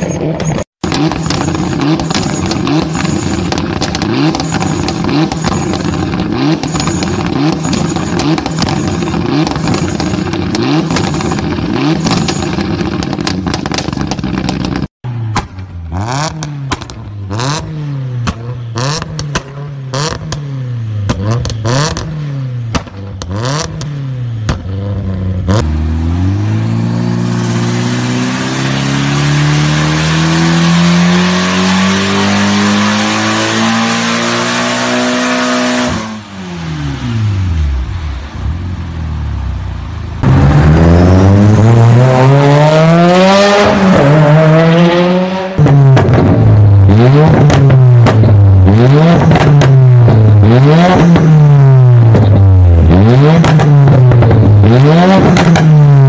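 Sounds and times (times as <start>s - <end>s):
car engine revving: 0.0s - 56.0s
exhaust pops and crackles: 0.2s - 15.7s, 16.3s - 17.1s, 18.2s - 20.4s, 21.0s - 22.1s, 22.7s - 25.1s, 45.6s - 56.0s.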